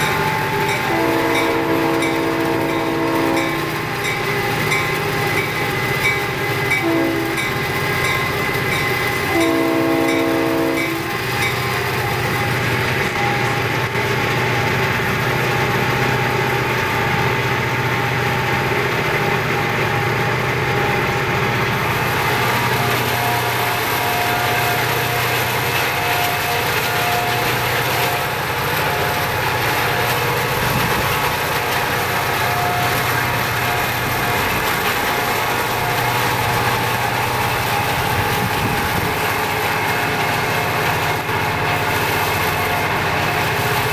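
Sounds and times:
locomotive horn: 0:00.0 - 0:04.1, 0:05.8 - 0:08.5, 0:09.1 - 0:13.6, 0:22.1 - 0:43.9
freight train rumbling: 0:00.0 - 0:43.9.

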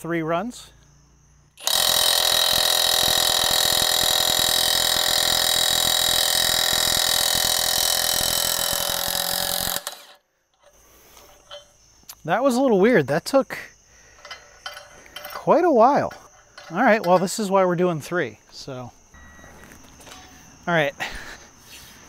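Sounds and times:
impact wrench hammering: 0:01.6 - 0:10.2.

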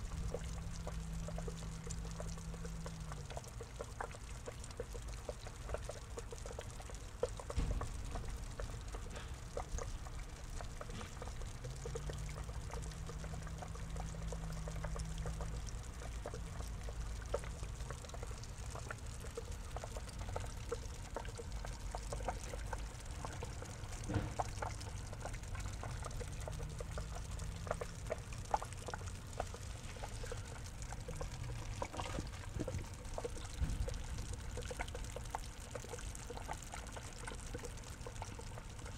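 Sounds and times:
water pouring into a pond: 0:00.0 - 0:38.9
water splashes and drips: 0:00.0 - 0:38.9.

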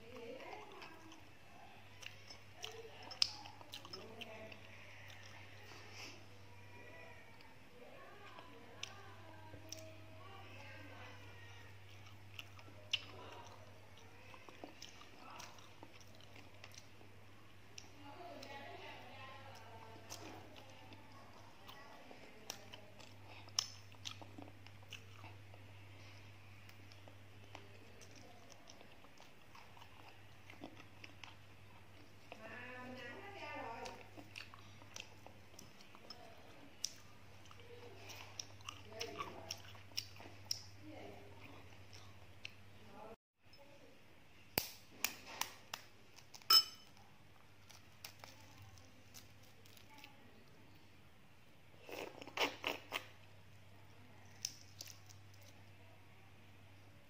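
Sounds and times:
chewing soft egg: 0:00.0 - 0:42.7, 0:44.6 - 0:56.0
low steady hum: 0:00.0 - 0:57.0
ringing clink: 0:46.5 - 0:46.9.

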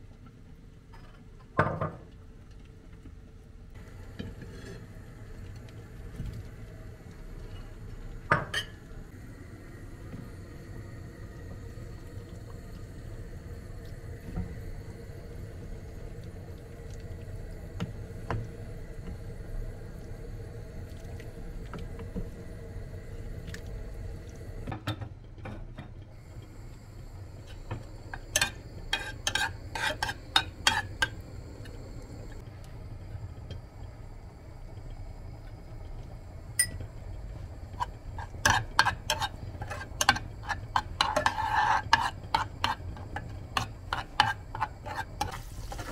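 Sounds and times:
wooden spoon stirring stew in pot: 0:28.2 - 0:30.9, 0:37.8 - 0:45.9
metal spoon scraping saucepan: 0:28.2 - 0:31.1, 0:37.8 - 0:45.9.

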